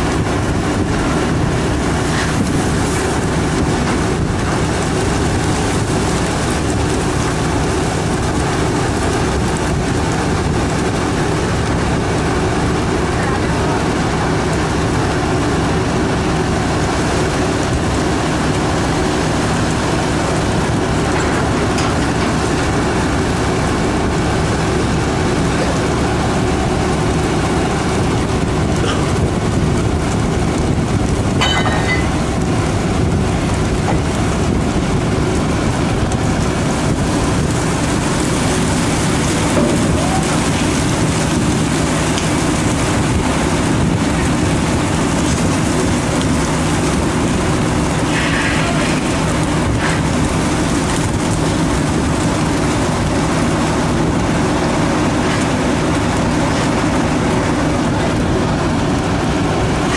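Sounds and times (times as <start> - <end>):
boat engines and deck machinery: 0.0 - 59.9
constant rushing noise: 0.0 - 59.9.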